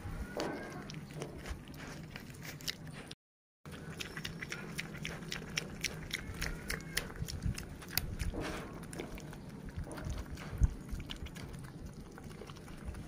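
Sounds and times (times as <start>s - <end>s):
animal chewing and smacking: 0.1s - 13.0s.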